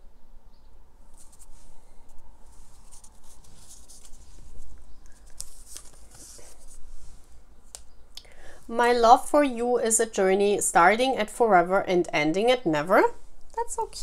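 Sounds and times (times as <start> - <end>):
paper cards rustling: 1.1 - 7.9.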